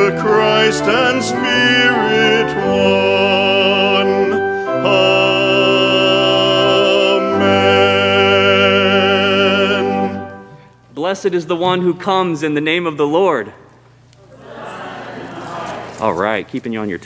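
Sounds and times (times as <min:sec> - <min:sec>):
man singing with vibrato: 0:00.0 - 0:10.5
held accompanying chords: 0:00.0 - 0:16.9.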